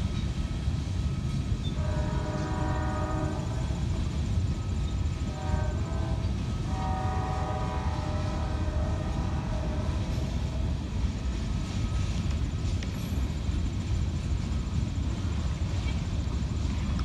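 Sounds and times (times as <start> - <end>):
freight train wheels rumbling: 0.0 - 17.0.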